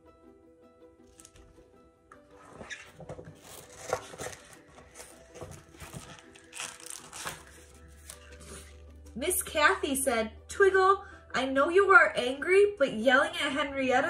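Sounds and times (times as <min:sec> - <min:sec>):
soft background music: 0:00.0 - 0:14.0
paper pages rustling: 0:01.1 - 0:01.6, 0:02.2 - 0:08.9.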